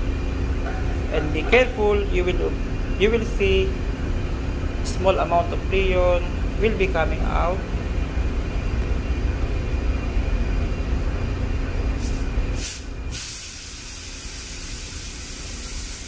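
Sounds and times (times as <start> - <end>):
refrigerant gas hissing: 11.9 - 16.0.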